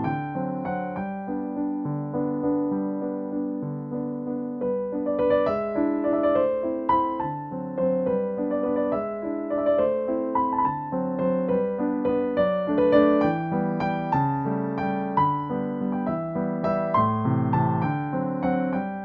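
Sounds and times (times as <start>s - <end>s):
piano music: 0.0s - 19.0s.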